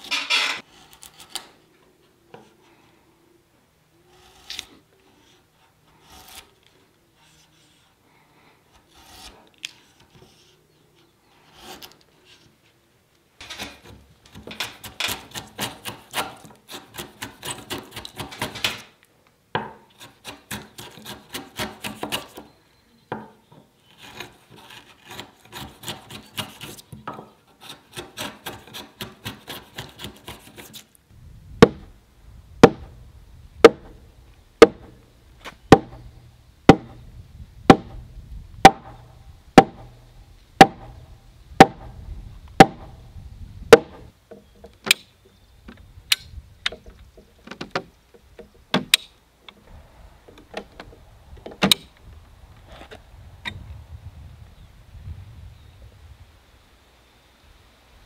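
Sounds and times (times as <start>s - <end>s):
chisel cutting wood: 0.0s - 1.6s, 4.1s - 6.6s, 8.7s - 10.5s, 11.4s - 12.0s, 13.4s - 18.7s, 19.9s - 22.4s, 23.8s - 30.8s.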